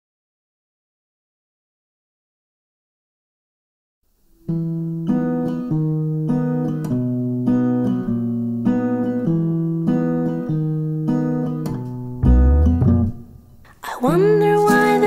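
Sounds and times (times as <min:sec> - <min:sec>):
acoustic guitar chords: 0:04.4 - 0:15.0.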